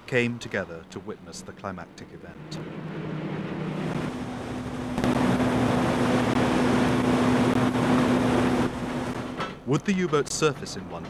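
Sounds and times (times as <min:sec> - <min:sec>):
motor humming: 0:02.3 - 0:09.4
rushing wind: 0:02.4 - 0:09.4.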